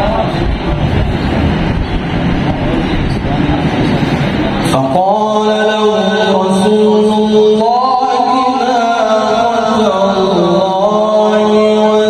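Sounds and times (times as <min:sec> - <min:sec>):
man reciting melodically into microphone: 0:04.6 - 0:12.0.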